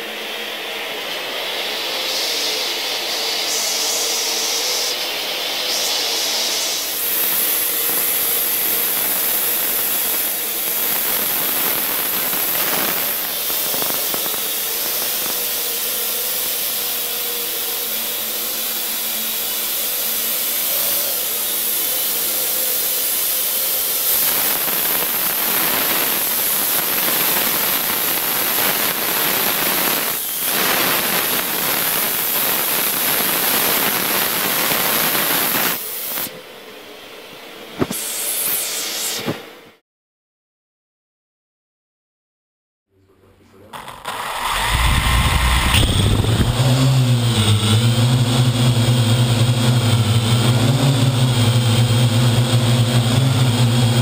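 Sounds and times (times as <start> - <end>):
drone rotors whirring: 43.7 - 54.0.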